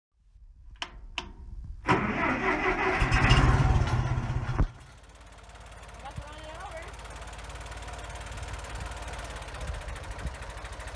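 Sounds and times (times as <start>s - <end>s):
tractor engine running: 0.6s - 10.9s
starter motor cranking: 1.9s - 5.2s.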